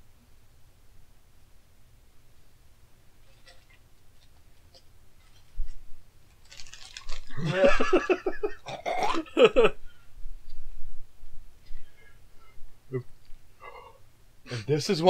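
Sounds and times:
person laughing heartily: 7.3 - 9.8.

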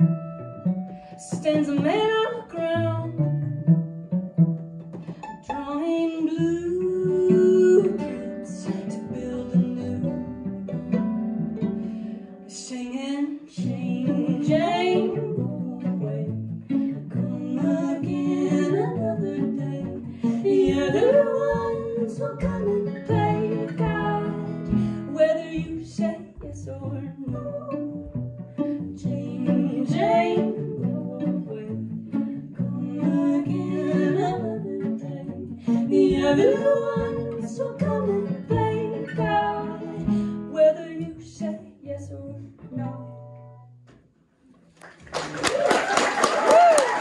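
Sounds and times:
upright bass: 0.0 - 12.2, 13.6 - 44.0
fiddle: 0.0 - 43.6
acoustic guitar: 0.0 - 45.1
person singing: 5.5 - 10.2, 12.5 - 43.1.

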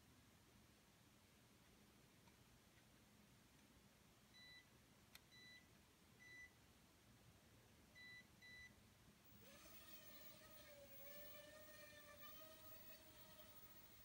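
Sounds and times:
small drone motors whining: 9.3 - 14.0.

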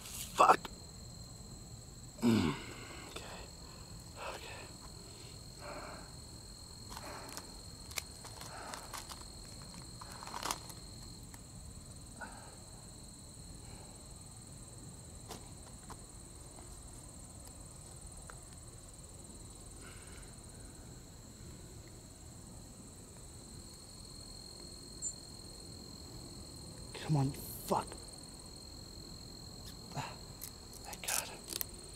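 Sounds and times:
insects chirring: 0.0 - 31.9
rustles and clicks: 6.9 - 11.4.

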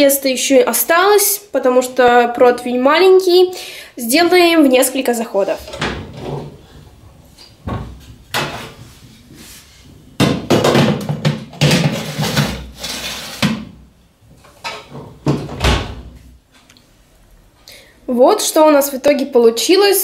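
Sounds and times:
oven door opening with knocks: 14.8 - 16.2.

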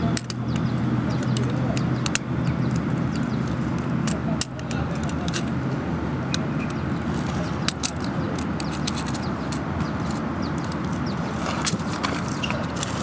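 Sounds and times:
plastic toy parts clicking: 0.1 - 5.6, 6.3 - 11.0.

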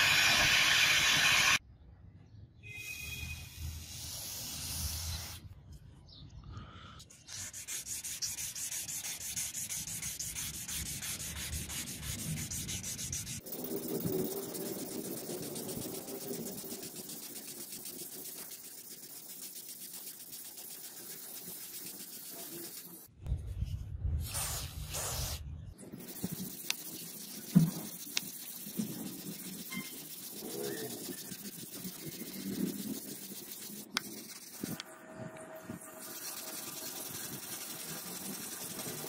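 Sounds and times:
sanding block rubbing metal blade: 7.3 - 23.1, 26.0 - 34.8, 35.8 - 39.0.

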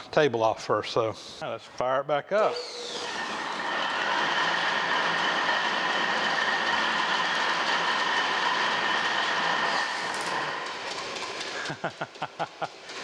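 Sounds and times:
belt-driven machine whirring: 2.6 - 13.0.

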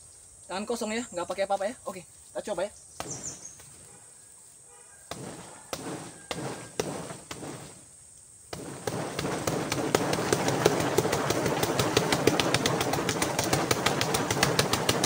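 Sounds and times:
fists punching tree trunk: 3.0 - 3.7, 5.1 - 7.7, 8.5 - 15.0.

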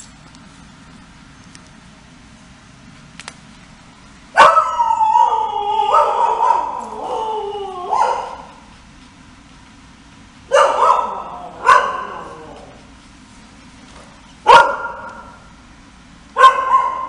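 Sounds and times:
dogs barking and howling: 4.4 - 8.7, 10.5 - 12.9, 16.4 - 17.0.

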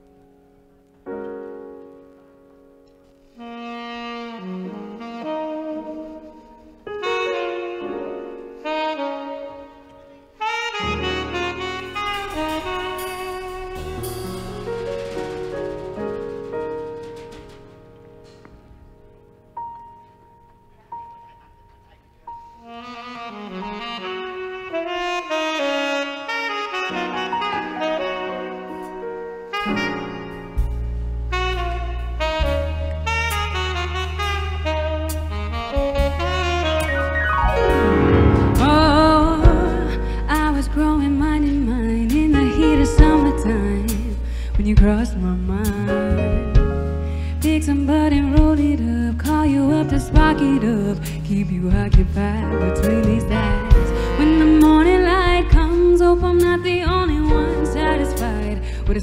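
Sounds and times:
saxophone slow melody: 3.2 - 15.4, 22.3 - 59.0
drums: 10.3 - 20.4, 26.7 - 59.0
bass: 10.6 - 24.6, 27.0 - 59.0
drums with cymbals: 11.6 - 18.4, 50.1 - 55.8
keyboard chords: 26.0 - 43.9
sustained chords: 36.9 - 40.6.

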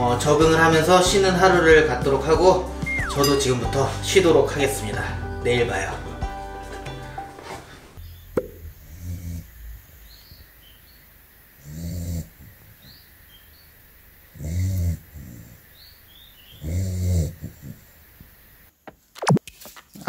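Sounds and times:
puppy snoring: 8.0 - 10.4, 11.6 - 12.5, 14.3 - 15.7, 16.5 - 17.9.

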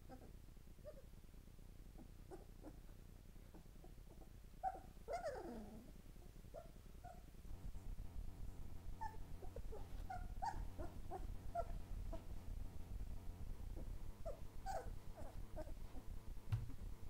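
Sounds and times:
low steady hum: 0.0 - 17.0
puppies whimpering: 3.8 - 6.0, 9.0 - 12.3, 13.8 - 15.8.

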